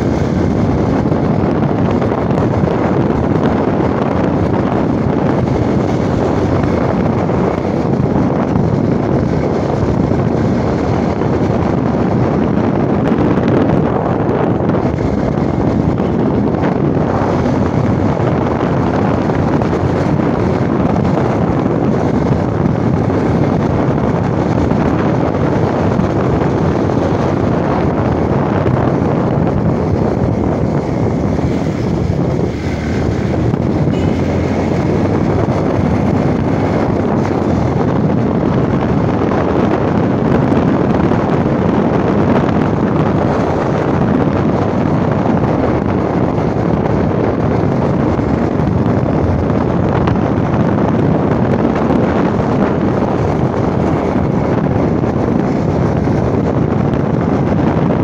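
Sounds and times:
motorcycle engine running: 0.0s - 58.0s
wind buffeting microphone: 0.0s - 58.0s.

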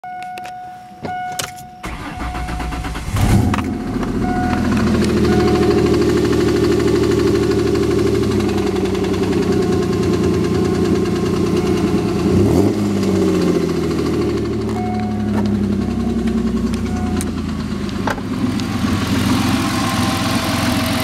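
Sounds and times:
dashboard warning chimes: 0.0s - 3.0s, 4.1s - 6.3s, 9.6s - 12.7s, 14.7s - 16.1s, 16.8s - 17.5s, 19.4s - 20.9s
car engine cranking and idling: 1.0s - 21.0s
rhythmic engine knock: 3.9s - 12.3s.

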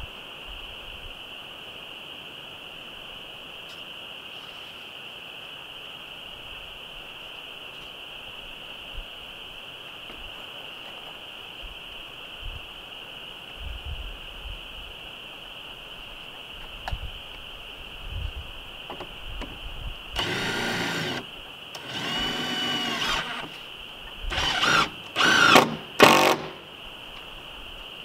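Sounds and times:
cordless drill driving screws: 20.2s - 23.6s, 24.3s - 26.6s.

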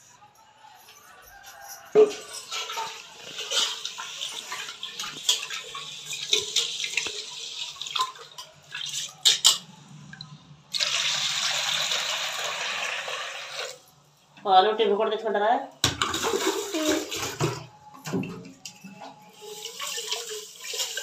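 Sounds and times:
water sloshing in a pot: 1.9s - 13.8s, 15.8s - 21.0s
water pouring into a pot: 2.4s - 9.6s, 10.7s - 13.8s, 19.3s - 21.0s.

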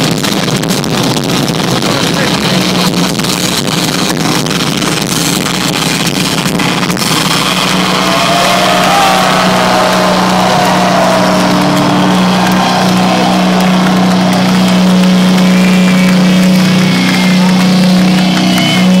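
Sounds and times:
low drone: 4.7s - 19.0s
heavy metal band playing: 6.6s - 19.0s
crowd voices: 7.0s - 19.0s.

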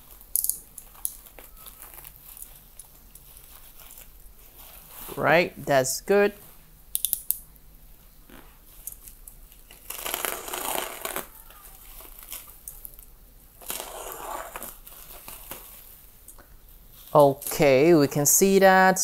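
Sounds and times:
bubble wrap crinkling and rustling: 0.0s - 5.2s, 8.2s - 17.6s.

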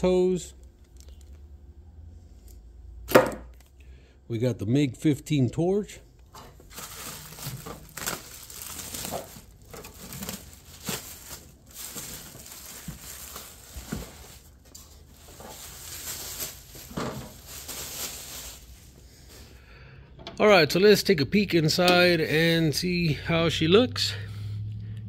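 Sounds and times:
plastic bag crinkling: 6.6s - 19.5s.

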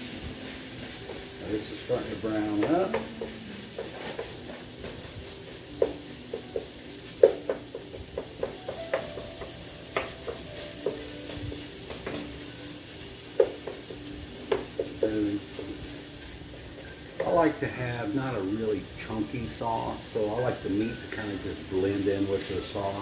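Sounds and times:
spatula scraping frying pan: 0.0s - 17.5s
meat sizzling: 0.0s - 23.0s.

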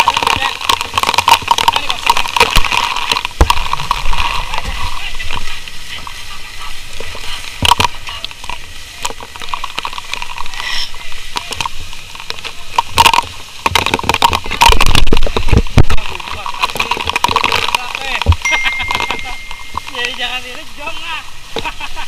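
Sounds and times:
sharp clicks and knocks: 11.4s - 20.2s.

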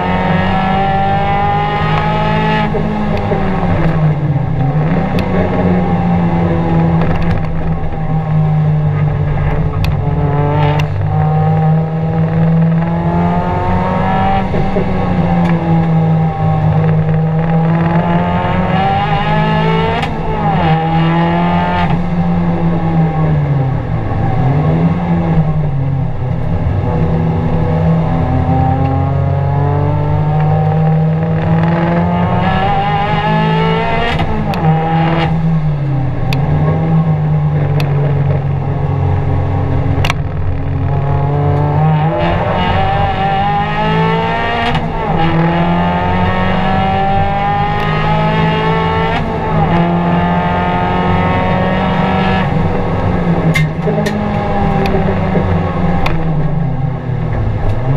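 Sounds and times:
car engine revving hard: 0.0s - 57.9s.

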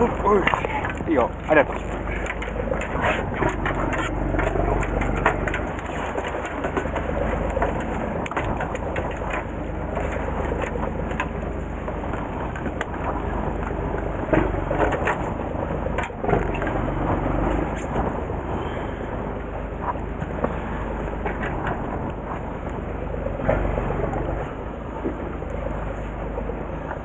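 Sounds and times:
boat engine rumble: 0.0s - 27.0s
water noise: 0.0s - 27.0s
wind: 0.0s - 27.0s.

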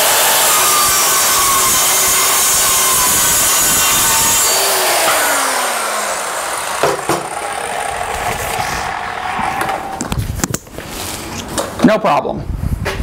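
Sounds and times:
saw knocking on stand: 0.0s - 9.8s
circular saw cutting metal: 0.0s - 10.0s
saw winding down whine: 0.0s - 10.2s.

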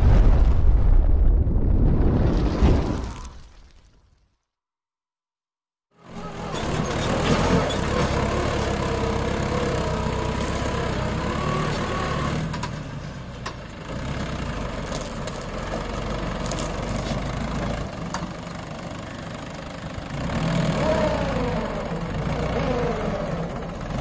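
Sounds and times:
tractor diesel engine running: 6.0s - 24.0s.

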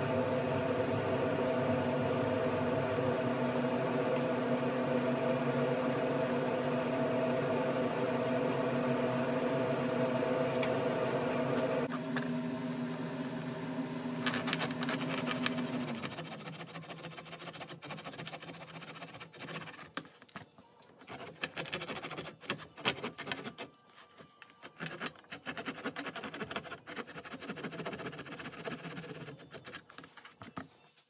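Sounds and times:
saw rasping through wood: 24.6s - 29.8s.

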